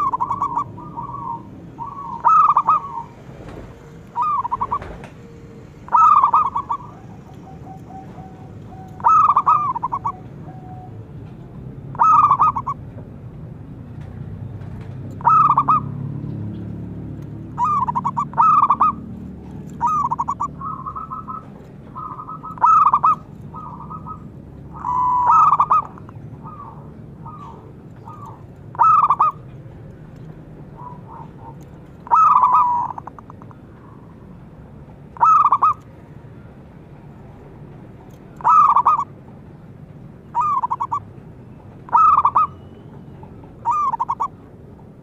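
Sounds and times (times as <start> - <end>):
dove cooing: 0.0 - 3.5, 4.2 - 11.1, 11.9 - 12.8, 15.2 - 16.2, 17.6 - 29.5, 30.7 - 34.2, 35.2 - 35.8, 38.4 - 39.1, 40.3 - 41.0, 41.9 - 42.6, 43.6 - 44.4.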